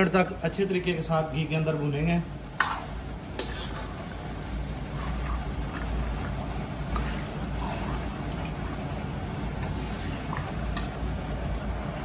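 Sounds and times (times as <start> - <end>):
spatula scraping a pan: 2.6 - 10.8.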